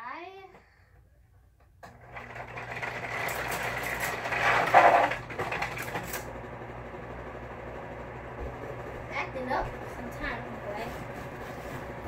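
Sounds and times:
electric fan motor hum: 1.8s - 12.0s
fan rattling and clattering: 2.1s - 7.3s, 8.2s - 12.0s.

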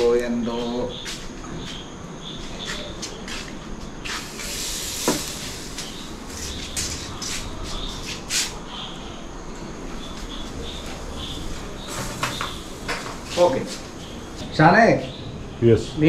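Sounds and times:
meat sizzling on grill: 4.1s - 7.4s, 11.3s - 14.4s.

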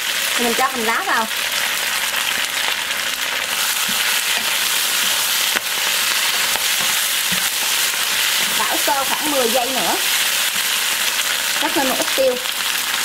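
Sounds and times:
food sizzling in a wok: 0.0s - 13.0s
wooden spatula stirring: 3.5s - 11.7s.

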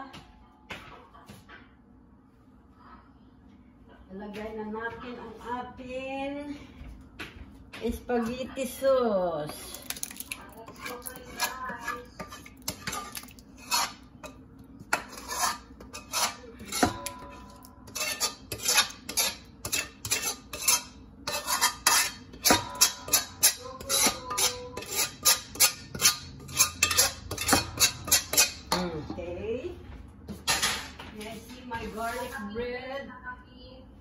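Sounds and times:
metallic ringing: 16.7s - 17.9s.

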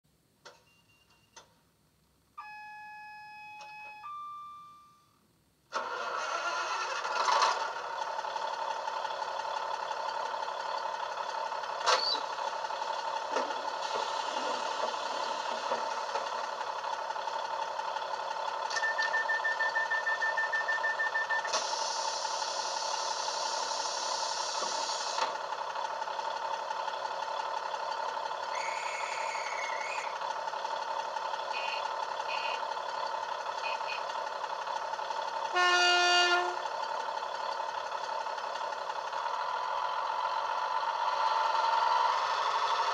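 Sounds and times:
diesel engine idling: 5.2s - 42.9s
rapid beeps: 18.7s - 21.5s
air hiss: 21.5s - 25.2s.

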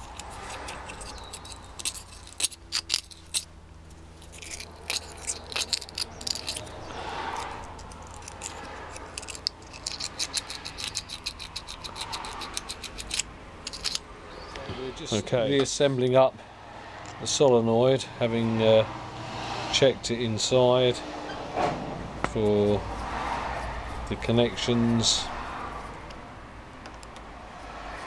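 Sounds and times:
sandpaper rubbing on metal: 0.0s - 3.4s.

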